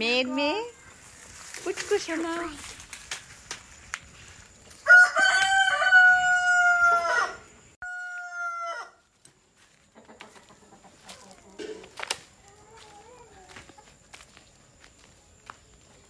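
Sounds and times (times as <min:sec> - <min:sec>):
rooster crowing: 0:04.7 - 0:09.0.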